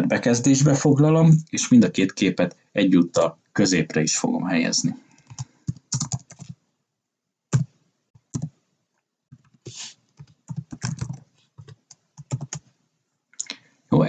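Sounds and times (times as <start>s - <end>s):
typing on a computer keyboard: 5.2s - 6.6s, 7.5s - 8.5s, 9.4s - 12.7s.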